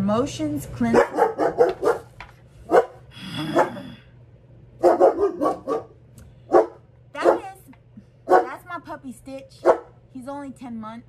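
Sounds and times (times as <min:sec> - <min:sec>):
puppy barking: 0:00.8 - 0:03.8, 0:04.8 - 0:07.6, 0:08.3 - 0:08.6, 0:09.6 - 0:10.0.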